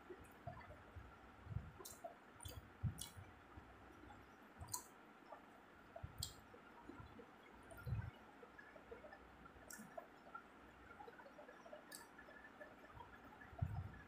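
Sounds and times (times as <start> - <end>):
soft chewing and mouth noises: 0.1 - 14.0
soft low thumps: 0.4 - 1.9, 7.8 - 8.2, 13.6 - 14.0.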